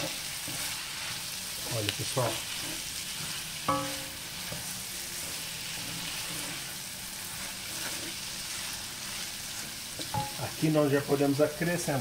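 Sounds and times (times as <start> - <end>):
wooden spoon scraping a pan: 0.0 - 10.9
vegetables sizzling in oil: 0.0 - 12.0.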